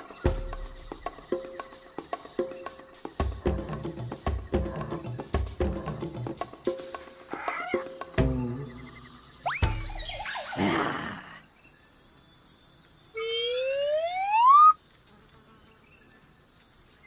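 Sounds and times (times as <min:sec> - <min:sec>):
rising whistle sound effect: 0:09.4 - 0:10.6, 0:13.2 - 0:14.8.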